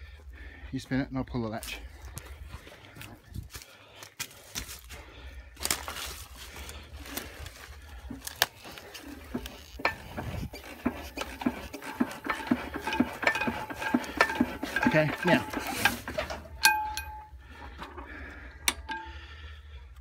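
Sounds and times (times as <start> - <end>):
engine flywheels clicking and clanking: 5.6 - 20.0.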